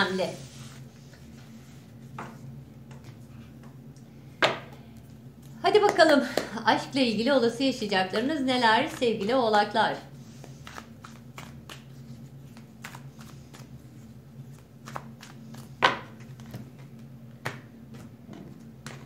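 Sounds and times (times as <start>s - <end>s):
steady low hum: 0.0s - 19.0s
cards being shuffled: 10.2s - 19.0s.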